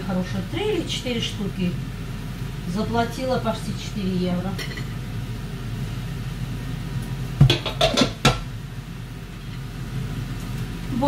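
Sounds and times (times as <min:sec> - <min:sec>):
steady hum: 0:00.0 - 0:11.0
kitchenware knocks and clinks: 0:07.4 - 0:08.4.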